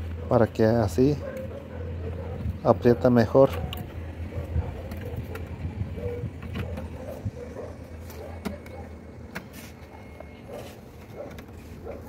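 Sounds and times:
steady low rumble: 3.6 - 9.3.

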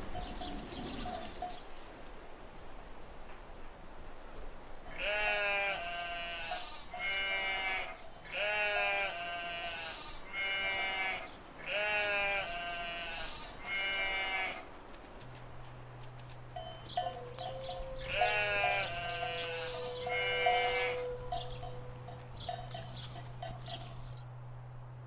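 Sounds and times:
sheep bleating: 5.0 - 14.6, 17.3 - 23.2.

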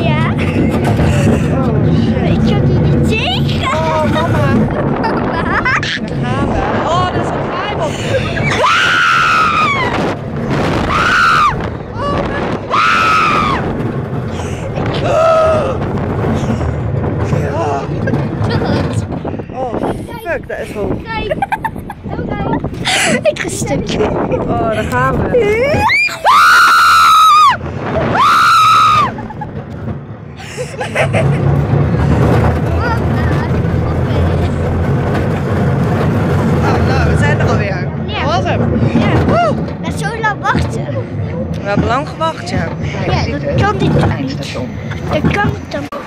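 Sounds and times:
rushing noise: 0.0 - 46.0
wind on microphone: 0.0 - 46.0
people screaming: 8.1 - 10.2, 10.8 - 13.7, 25.6 - 29.4.

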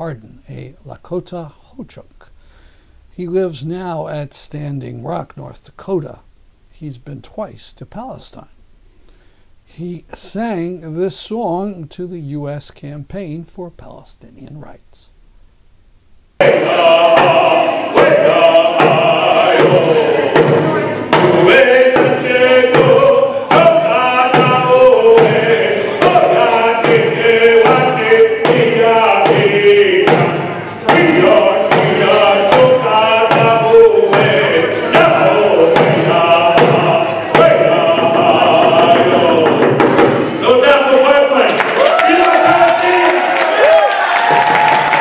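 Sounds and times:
man chanting a song: 16.4 - 39.8
frame drum beaten steadily: 16.4 - 40.3.

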